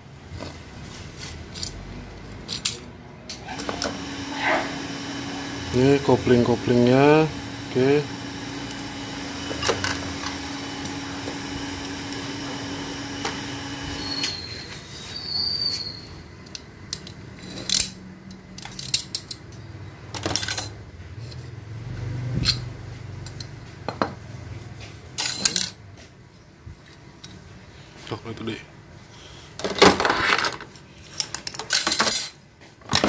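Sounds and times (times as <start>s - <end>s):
steady hum: 3.5s - 14.0s.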